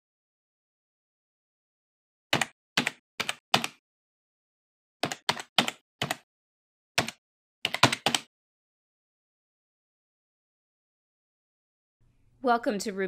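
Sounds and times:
keyboard keystrokes: 2.4 - 3.8, 5.0 - 6.2, 7.0 - 8.3.

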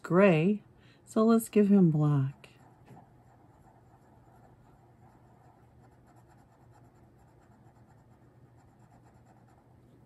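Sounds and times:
marker scratching on card: 2.3 - 9.8.

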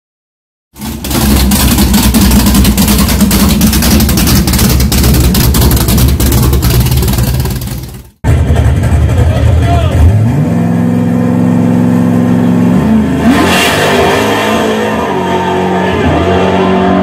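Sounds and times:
car engine running with low rumble: 0.8 - 13.1.

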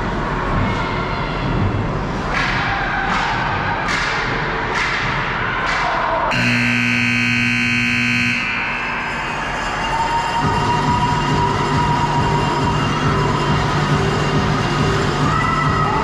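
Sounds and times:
ice rink noise: 0.0 - 16.0
scoreboard buzzer: 6.3 - 9.2.

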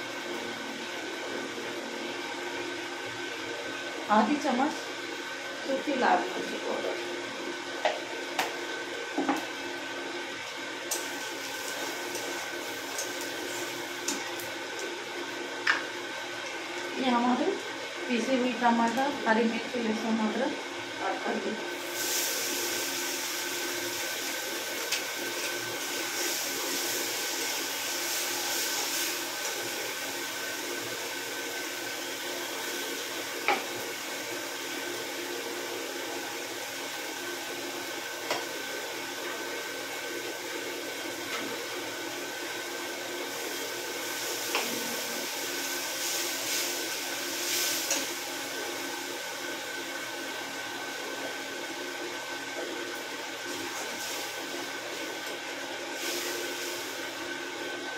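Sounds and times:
paste sizzling in hot oil: 10.8 - 16.8, 21.7 - 57.6.

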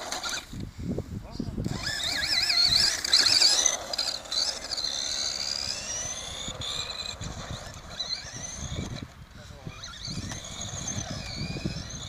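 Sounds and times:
electric toy car motor whining: 0.0 - 0.7, 1.6 - 12.0.

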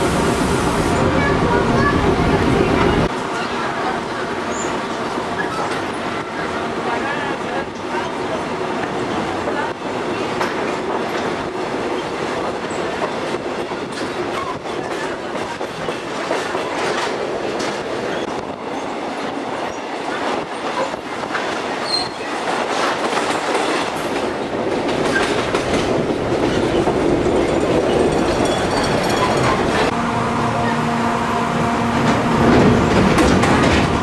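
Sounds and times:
train rumbling on rails: 0.0 - 34.0
high wheel squeal: 21.8 - 22.3.

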